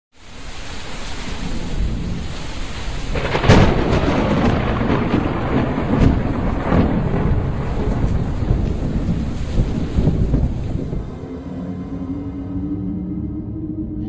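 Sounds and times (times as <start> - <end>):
rushing hiss: 0.2 - 11.8
rolling rumble: 1.4 - 11.3.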